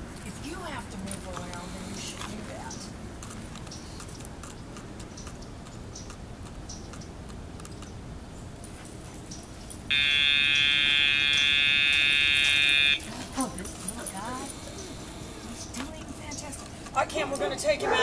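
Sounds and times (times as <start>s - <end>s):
loud electronic buzz: 9.9s - 13.1s.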